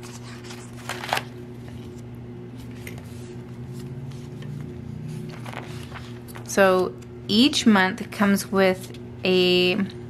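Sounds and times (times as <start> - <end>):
crisp paper rustles: 0.0 - 2.0
planner pages turning: 0.0 - 2.0, 2.6 - 6.4
steady low hum: 0.0 - 10.0.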